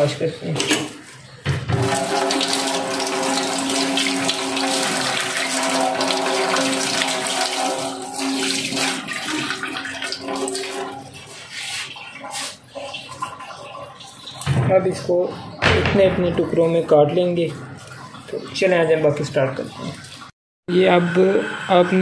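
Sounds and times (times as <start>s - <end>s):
tap water running into sink: 1.4s - 16.4s
ringing hum: 1.7s - 11.2s, 20.7s - 22.0s.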